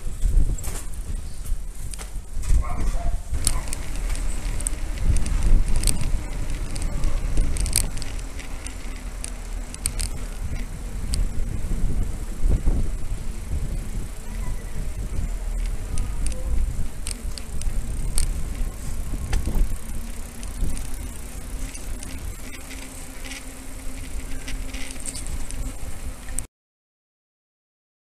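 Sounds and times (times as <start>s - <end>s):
bicycle clicks and rattles: 0.0s - 26.5s
road noise: 0.0s - 26.5s
steady low hum: 0.0s - 26.5s
wind rumbling on microphone: 0.0s - 26.5s.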